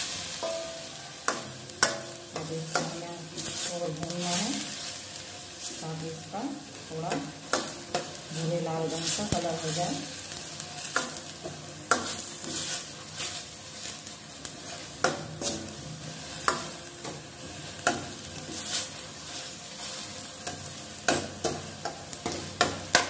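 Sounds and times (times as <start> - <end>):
oil sizzling: 0.0 - 23.0
ladle stirring and scraping pan: 7.4 - 23.0.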